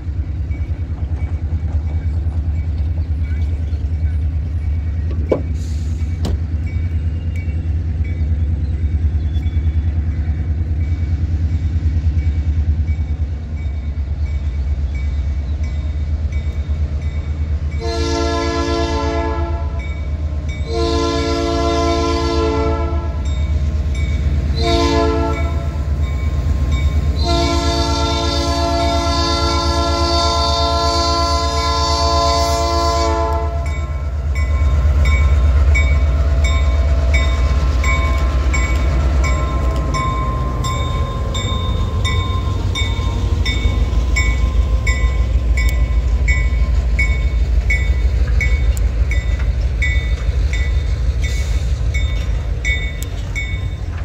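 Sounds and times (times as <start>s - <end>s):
steady low train rumble: 0.0s - 54.0s
locomotive air horn blasts: 17.8s - 19.9s, 20.6s - 23.3s, 24.5s - 25.8s, 27.2s - 33.9s.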